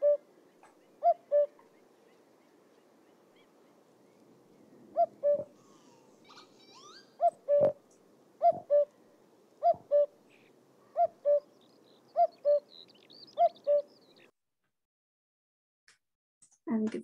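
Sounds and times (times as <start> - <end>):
cuckoo calling: 0.0 - 4.3, 5.0 - 7.8, 8.4 - 9.0, 9.6 - 14.3
faint songbird chirps: 0.0 - 14.3.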